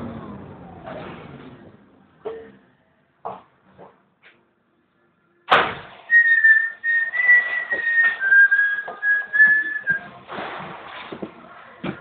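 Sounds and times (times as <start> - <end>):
high whistling tone: 6.1 - 10.1
rattling and knocks inside bus: 7.9 - 12.0.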